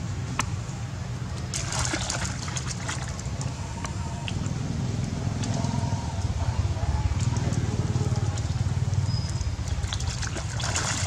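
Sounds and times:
water splashing in puddle: 1.4s - 6.4s, 7.1s - 11.0s.

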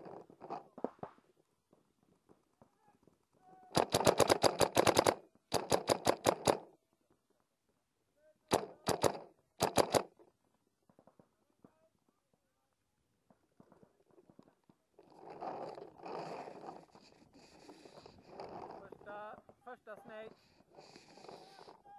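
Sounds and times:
paintball marker firing: 3.7s - 6.7s, 8.5s - 10.2s.

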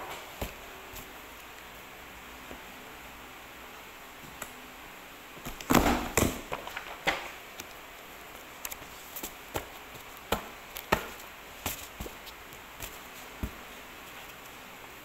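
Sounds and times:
paper rustling: 8.6s - 14.6s.

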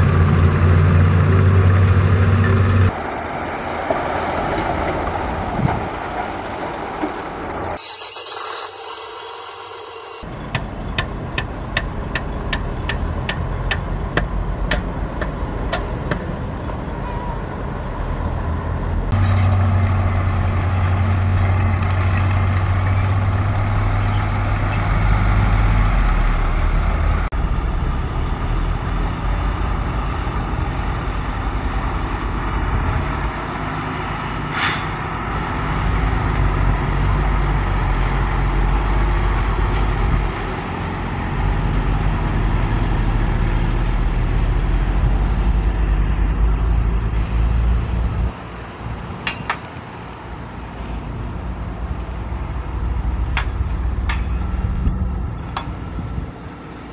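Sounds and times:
diesel truck engines running: 0.0s - 7.9s, 10.1s - 56.9s
air-brake hiss: 34.5s - 35.0s.

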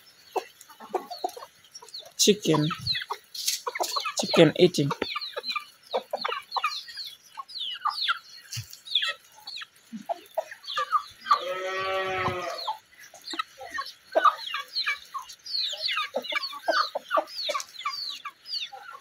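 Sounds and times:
chickens clucking and peeping: 0.0s - 19.0s
farm animal drawn-out call: 11.2s - 12.8s.

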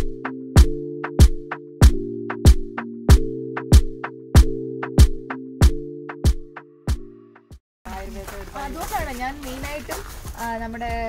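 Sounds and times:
held low chord: 0.0s - 7.5s
music with steady drum beat: 0.0s - 7.6s.

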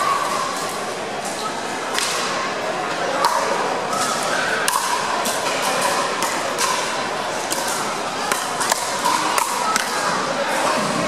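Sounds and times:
paddles hitting plastic ball: 7.5s - 10.0s.

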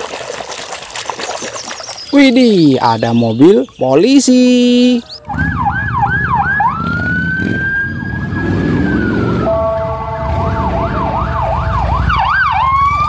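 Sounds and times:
second siren steady tones: 4.2s - 13.0s
police siren yelp and wail: 4.8s - 13.0s.

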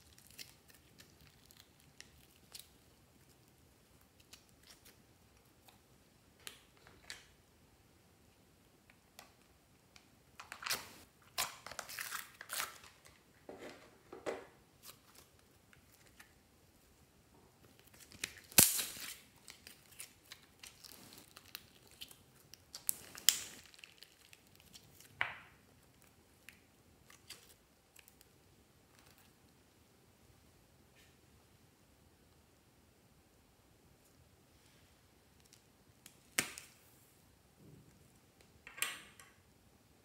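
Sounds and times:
slime crackling and tearing: 17.8s - 25.1s.

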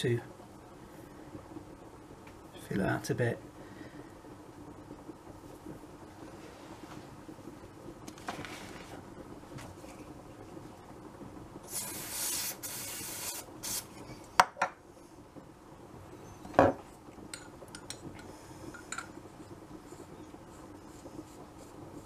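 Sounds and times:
aerosol spray hissing: 11.7s - 13.9s.

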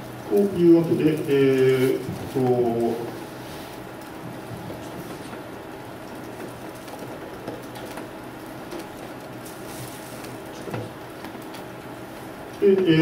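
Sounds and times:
steady hiss: 0.0s - 5.9s
small ticks and rustles: 0.1s - 12.6s.

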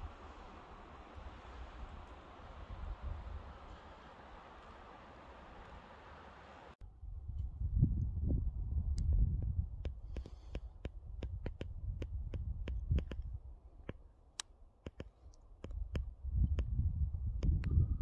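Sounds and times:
wind buffeting microphone: 0.0s - 14.0s, 15.6s - 18.0s
sharp clicks: 9.8s - 16.6s.

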